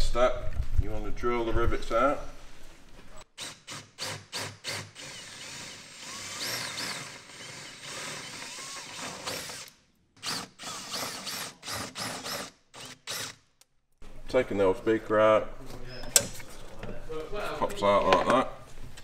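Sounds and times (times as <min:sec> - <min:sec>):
cordless drill drilling rivets: 0:03.3 - 0:13.6.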